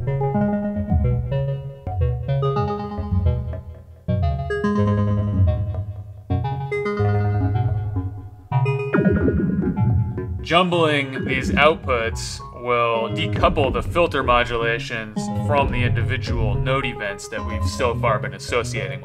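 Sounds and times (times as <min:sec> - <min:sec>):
sustained synthesizer tones: 0:08.6 - 0:17.0.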